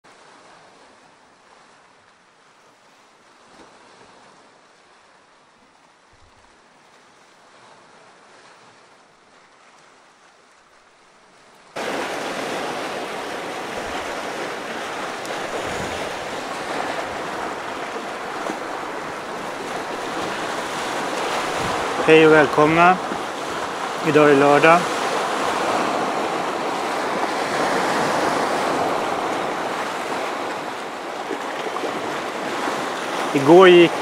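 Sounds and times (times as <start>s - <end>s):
sea waves washing over rocks: 11.7s - 34.0s.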